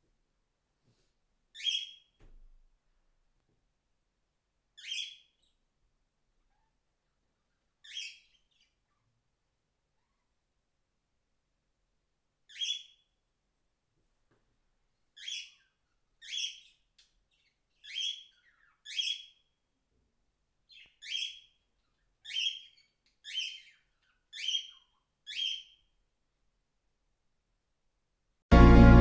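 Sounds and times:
cockatiel calling: 1.6 - 2.1, 4.8 - 5.5, 7.8 - 8.8, 12.5 - 13.0, 15.2 - 16.8, 17.4 - 19.4, 20.7 - 21.5, 22.2 - 25.8.

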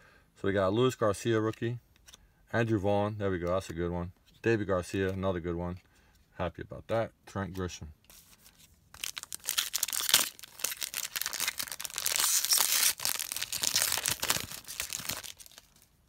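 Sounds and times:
foil wrapper crinkling and tearing: 8.9 - 16.0.

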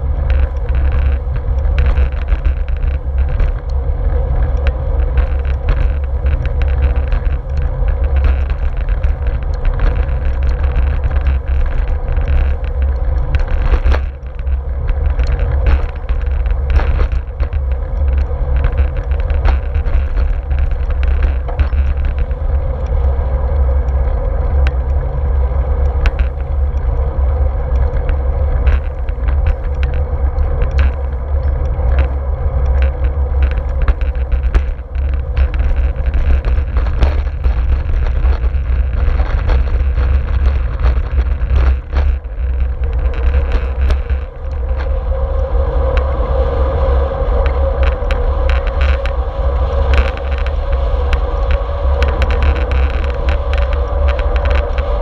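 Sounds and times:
bicycle clicks and rattles: 0.0 - 55.0
wind rumble: 0.0 - 55.0.

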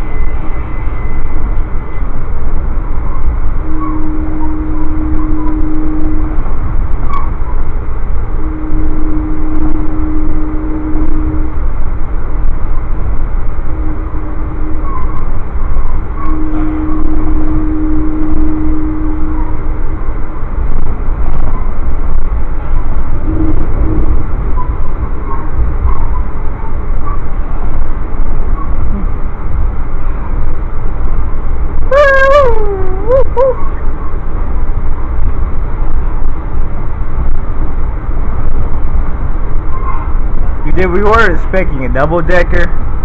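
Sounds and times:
train horn blasts: 0.0 - 2.2, 3.2 - 29.3
train rumbling at speed: 0.0 - 43.0.

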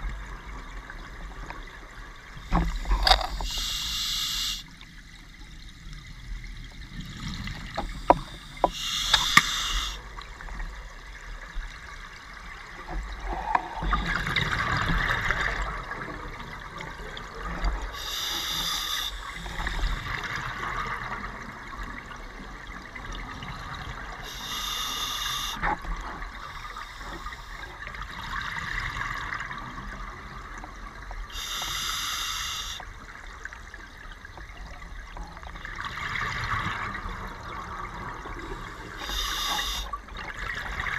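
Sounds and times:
diver regulator breathing underwater: 2.6 - 4.6, 7.8 - 10.0, 18.0 - 20.0, 24.2 - 25.6, 31.3 - 32.8, 38.7 - 40.0
sharp clicks: 8.1 - 9.9.

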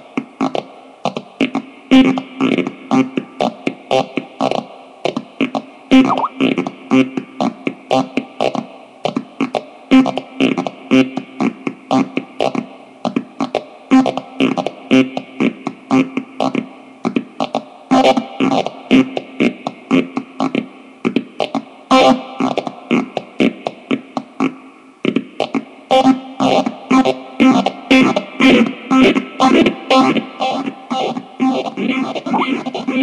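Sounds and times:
pulsing synth tone: 6.0 - 6.3.

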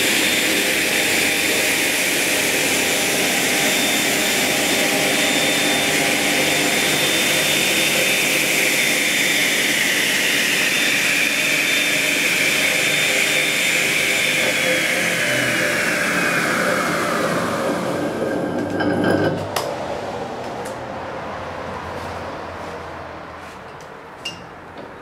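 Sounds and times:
circular saw whining: 0.0 - 19.6.

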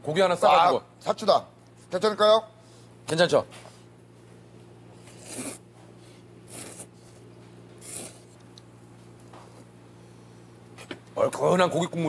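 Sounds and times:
low steady hum: 0.0 - 12.0
person slurping noodles: 5.0 - 5.6, 6.4 - 6.9, 7.8 - 8.4.

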